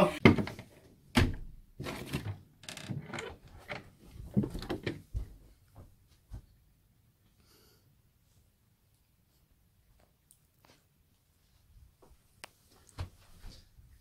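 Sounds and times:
knocks and thumps of people moving: 0.0 - 6.5.

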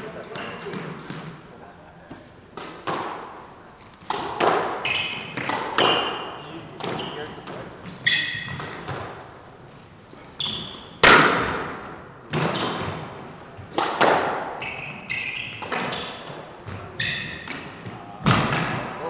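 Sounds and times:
squash ball hitting rackets and walls: 0.2 - 1.4, 2.2 - 19.0
shoes squeaking on wooden floor: 3.7 - 11.0, 12.4 - 13.8, 14.6 - 17.9.

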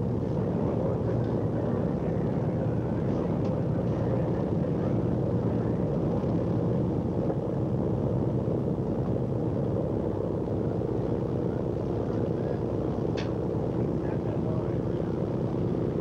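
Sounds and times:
boat engines droning: 0.0 - 16.0.

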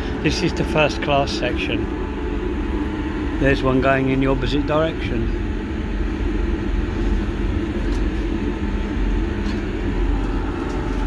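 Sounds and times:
diesel engine rumbling: 0.0 - 11.0.

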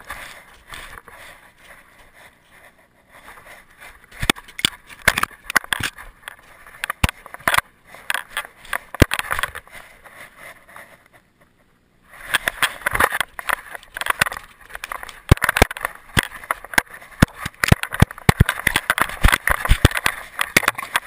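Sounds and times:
paws crunching snow: 0.0 - 11.2
rustling and scraping: 0.0 - 21.0.

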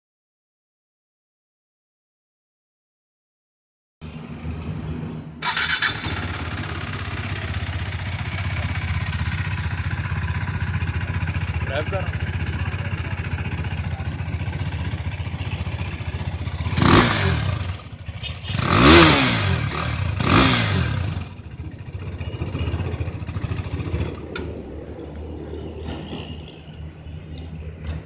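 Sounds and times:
motorcycle engine idling and revving: 4.0 - 28.0.

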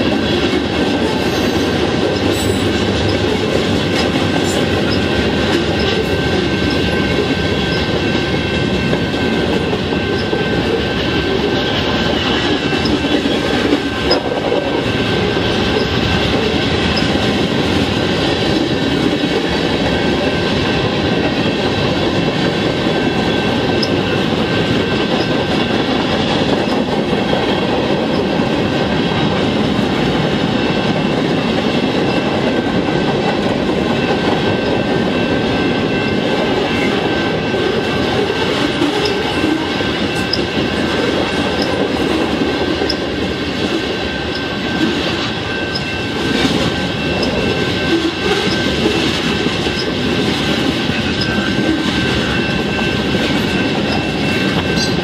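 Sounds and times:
train wheels rumbling and clattering: 0.0 - 55.0
thin squealing tones: 1.1 - 7.9, 15.7 - 17.2, 44.0 - 50.0, 50.9 - 55.0.

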